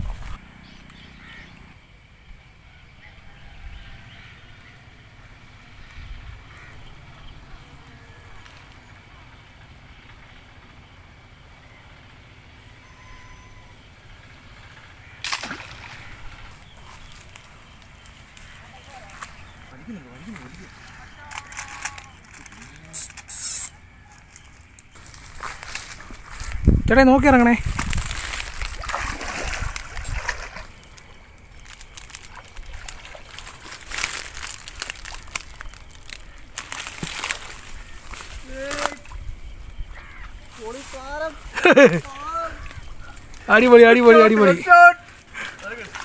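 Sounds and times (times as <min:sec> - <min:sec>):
slingshot rifle crack: 0:15.2 - 0:15.8
dart splashing into water: 0:15.2 - 0:16.0
person wading through water: 0:15.2 - 0:21.0, 0:28.0 - 0:39.3, 0:44.3 - 0:46.0.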